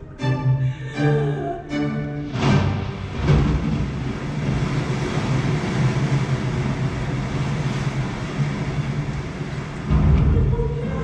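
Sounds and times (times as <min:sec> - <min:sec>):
heavy waves: 0:00.0 - 0:11.0
wind rushing: 0:02.3 - 0:11.0.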